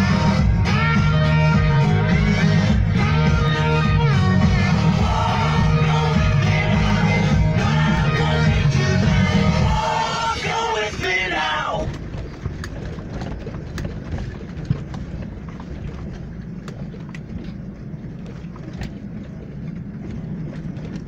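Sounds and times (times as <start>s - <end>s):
song with backing music: 0.0s - 11.6s
wind rumbling on microphone: 0.0s - 21.0s.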